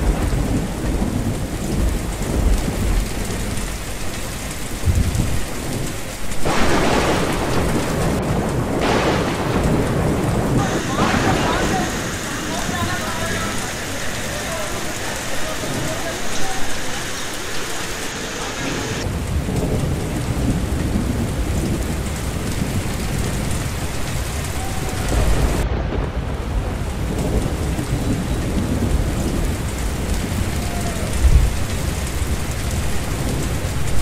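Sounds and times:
floodwater rushing: 0.0s - 25.7s, 26.3s - 34.0s
heavy rain falling: 0.0s - 34.0s
deep rumbling: 19.0s - 33.9s.

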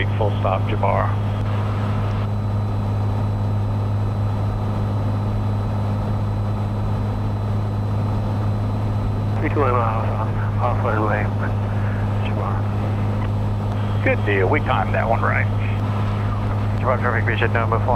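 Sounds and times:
airplane engine and propeller drone: 0.0s - 17.9s.

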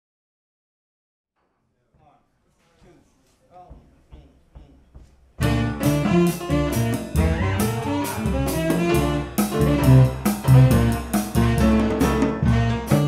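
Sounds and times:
jazz-funk band playing: 5.4s - 13.0s
saxophone: 5.4s - 13.0s.

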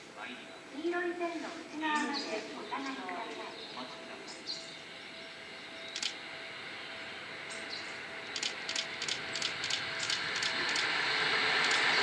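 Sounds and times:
electric train approaching: 0.0s - 12.0s.

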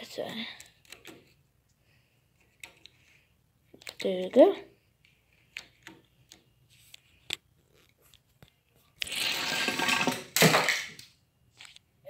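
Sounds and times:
toy car rolling on plastic track: 9.0s - 10.8s.

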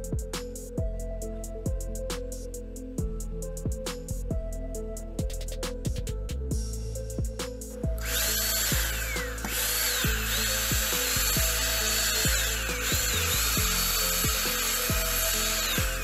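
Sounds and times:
background music: 0.0s - 16.0s
electric blower running: 8.0s - 16.0s.

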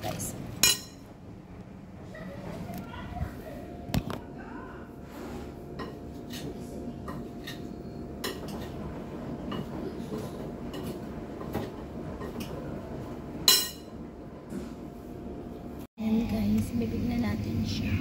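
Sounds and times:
utensils clinking against a dish: 0.6s - 1.1s, 5.8s - 8.8s, 9.4s - 12.6s, 13.4s - 14.0s.

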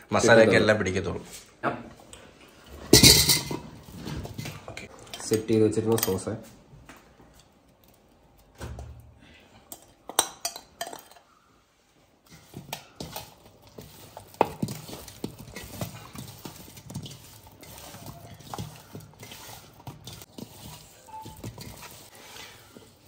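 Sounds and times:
metal spoon scraping a bowl: 12.3s - 23.0s.

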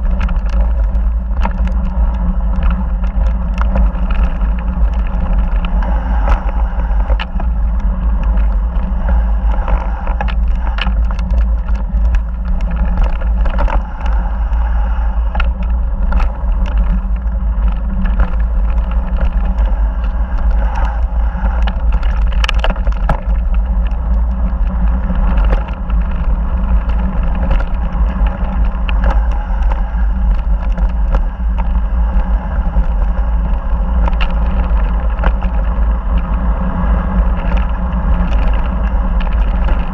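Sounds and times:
tyres clicking on loose stones: 0.0s - 24.6s
wind buffeting microphone: 0.0s - 39.9s.

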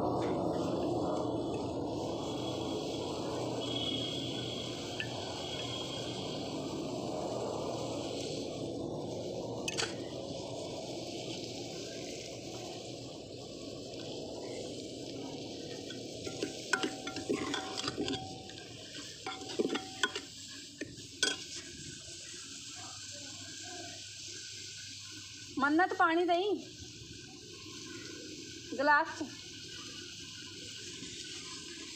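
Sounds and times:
masala sizzling in a pot: 0.0s - 31.9s
ladle scraping and clinking on pot: 15.9s - 20.4s, 21.2s - 21.6s.

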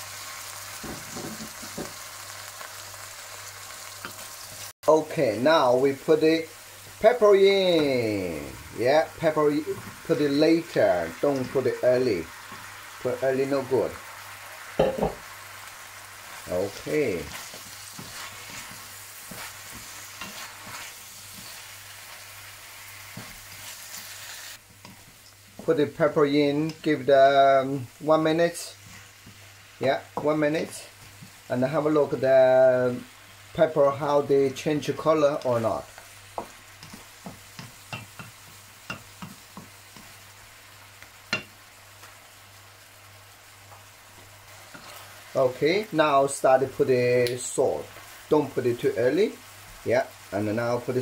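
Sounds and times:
food sizzling in hot oil: 0.0s - 51.0s
wooden spatula scraping a wok: 16.2s - 26.9s, 28.3s - 31.5s, 44.4s - 45.5s.

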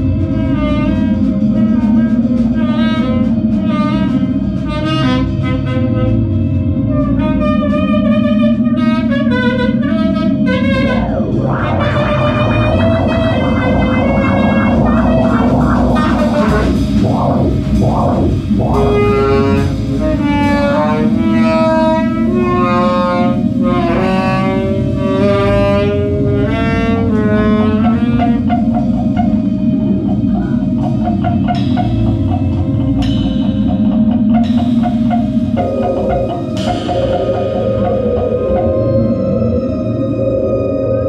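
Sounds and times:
alto saxophone: 0.0s - 29.9s
drums: 0.0s - 39.6s
synth: 0.0s - 41.0s.

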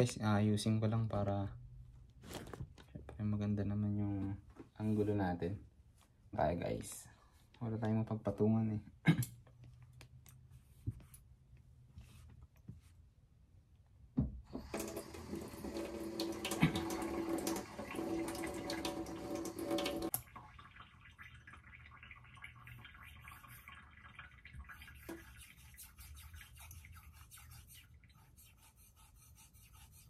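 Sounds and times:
water pouring: 14.5s - 28.2s.

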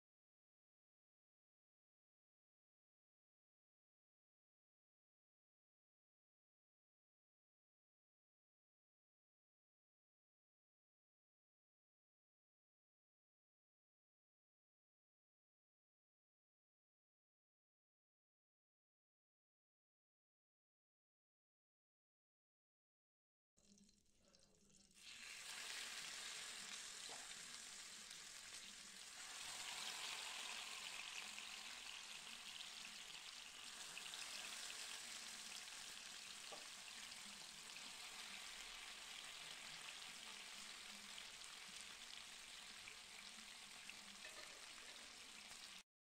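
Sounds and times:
chicken sizzling in a pan: 23.7s - 45.8s.

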